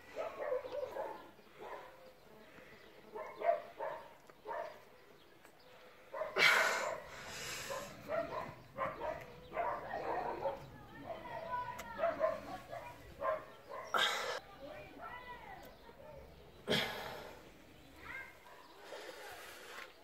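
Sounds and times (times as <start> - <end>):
man breathing forcefully: 5.8 - 8.1, 13.9 - 14.4.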